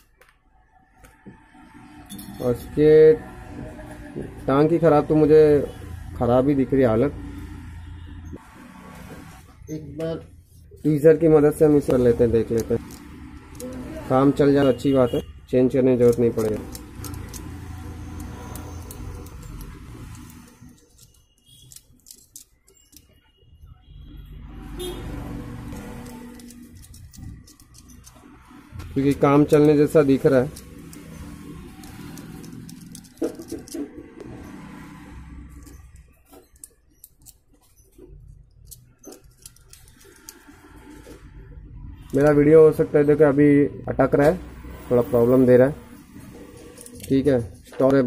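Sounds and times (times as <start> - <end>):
metal tweezers clicking and scraping: 11.4 - 14.4, 15.8 - 23.3, 25.0 - 42.6, 45.6 - 48.0.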